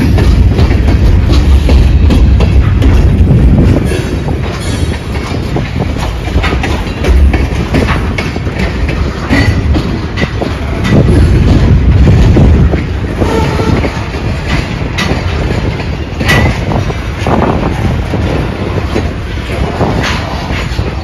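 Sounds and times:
freight cars rumbling: 0:00.0 - 0:21.0.

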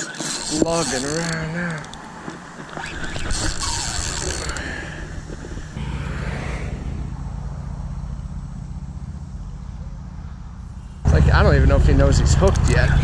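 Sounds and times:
fishing reel clicking and creaking: 0:00.0 - 0:02.2, 0:02.9 - 0:04.8
road traffic rumble: 0:04.9 - 0:13.0.

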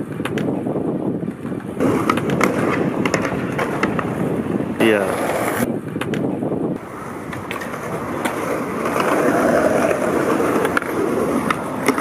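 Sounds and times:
skateboard wheels rolling on pavement: 0:00.0 - 0:12.0
skateboard grinding on concrete: 0:01.3 - 0:05.7, 0:06.8 - 0:12.0.

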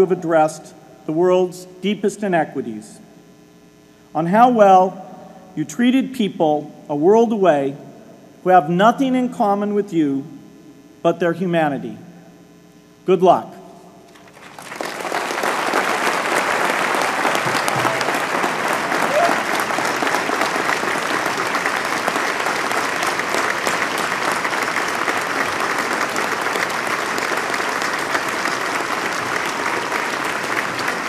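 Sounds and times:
crowd applauding: 0:14.1 - 0:31.0.

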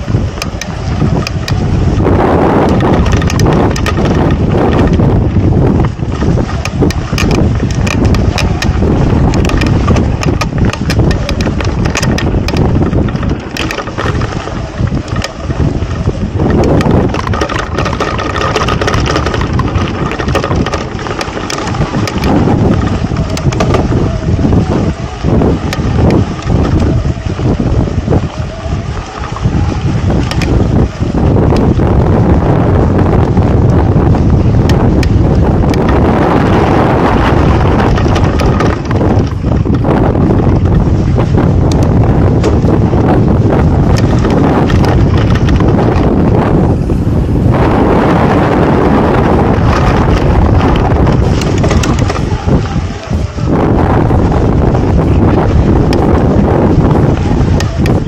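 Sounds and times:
bike clicks and knocks: 0:00.0 - 0:46.5, 0:49.1 - 0:58.0
bike tyres on dirt: 0:00.0 - 0:58.0
wind buffeting microphone: 0:00.0 - 0:58.0.

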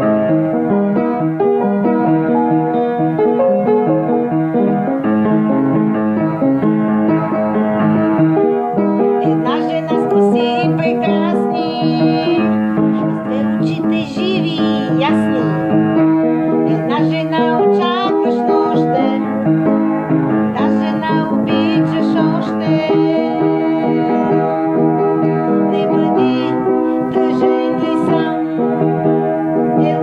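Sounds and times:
piano chords on keyboard: 0:00.0 - 0:30.0
woman singing with vibrato: 0:09.2 - 0:15.6, 0:16.7 - 0:19.3, 0:20.6 - 0:24.5, 0:25.6 - 0:28.8, 0:29.8 - 0:30.0.

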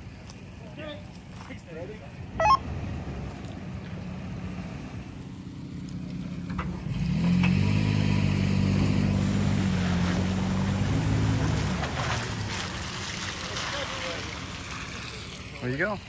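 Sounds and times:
truck engine revving: 0:06.3 - 0:13.0.

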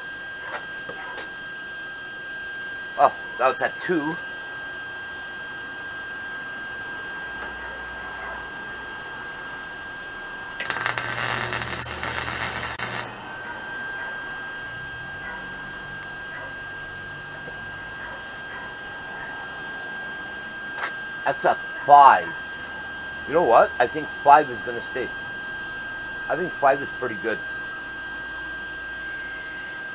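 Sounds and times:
electrical hum with high whine: 0:00.0 - 0:29.9
welder crackling: 0:07.4 - 0:09.1, 0:10.6 - 0:13.6, 0:16.0 - 0:17.7, 0:20.8 - 0:22.4.

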